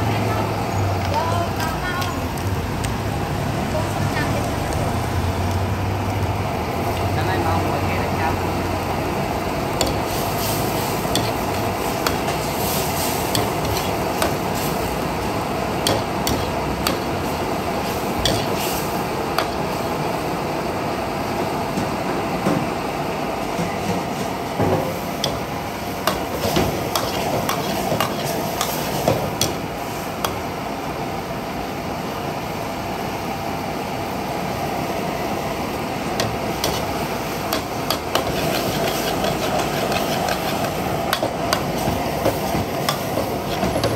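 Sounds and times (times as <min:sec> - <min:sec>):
sauce sizzling and bubbling: 0:00.4 - 0:21.6, 0:24.3 - 0:43.9
metal ladle scraping and clinking wok: 0:36.6 - 0:41.7.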